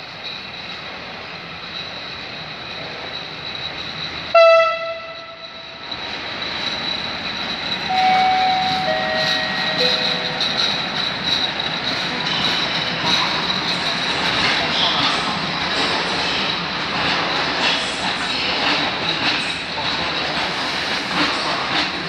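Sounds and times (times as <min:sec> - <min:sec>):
freight train rolling past: 0:00.0 - 0:22.0
wheels squealing: 0:00.1 - 0:22.0
locomotive horn blast: 0:04.4 - 0:05.4.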